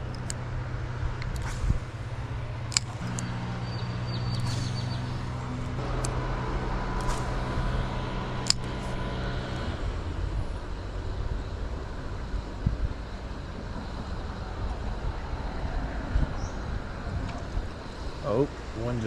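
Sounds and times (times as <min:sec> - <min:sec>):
sharp clicks: 0:00.0 - 0:00.4, 0:02.7 - 0:03.4, 0:04.1 - 0:06.2
vehicle engine humming: 0:00.0 - 0:19.0.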